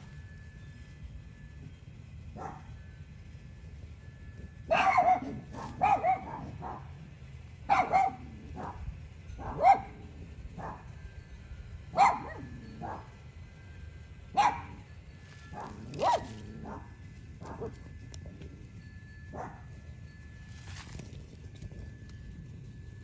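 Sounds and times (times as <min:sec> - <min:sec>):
dog barking: 0:02.4 - 0:02.7, 0:04.7 - 0:07.0, 0:07.6 - 0:08.8, 0:09.4 - 0:10.0, 0:11.9 - 0:13.1, 0:14.4 - 0:14.8, 0:15.5 - 0:17.8, 0:19.3 - 0:19.7.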